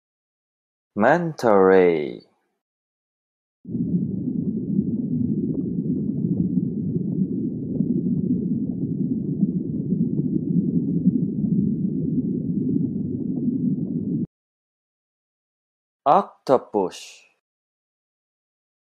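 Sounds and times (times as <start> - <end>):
muffled underwater rush of water: 3.7 - 14.3.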